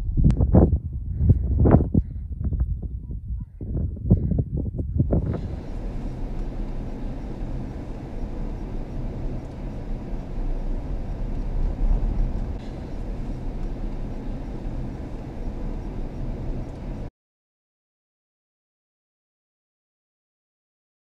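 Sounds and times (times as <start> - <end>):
vehicle tyres and engine rumble: 3.8 - 17.1.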